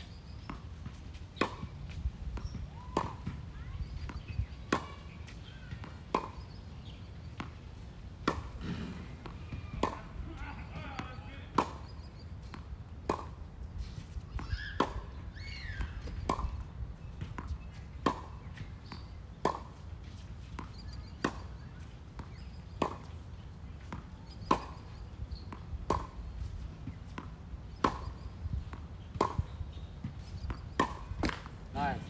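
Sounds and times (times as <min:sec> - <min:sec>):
ball bouncing on hard court: 0:00.4 - 0:06.5, 0:08.2 - 0:10.1, 0:26.9 - 0:32.0
rackets striking tennis ball: 0:00.4 - 0:07.6, 0:08.2 - 0:32.0.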